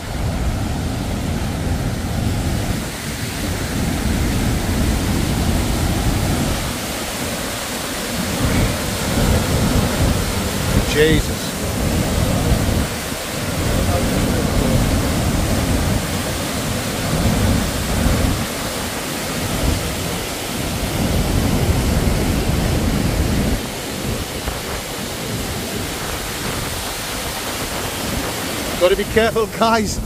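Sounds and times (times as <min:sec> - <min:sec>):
rush of falling water: 0:00.0 - 0:30.0
wind buffeting microphone: 0:00.0 - 0:30.0.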